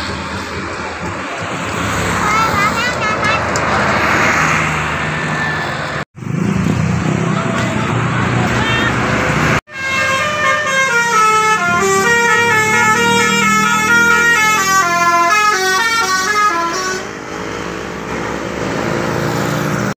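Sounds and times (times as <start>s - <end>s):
bus engine: 0.0s - 20.0s
road noise: 0.0s - 20.0s
bus horn playing a melody: 9.7s - 17.2s.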